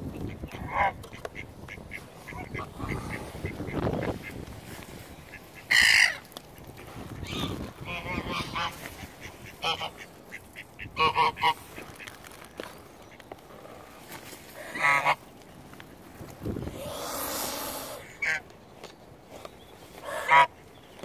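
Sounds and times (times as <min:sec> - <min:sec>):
geese honking: 0:00.3 - 0:04.4, 0:05.0 - 0:12.2, 0:14.6 - 0:15.2, 0:20.0 - 0:20.6.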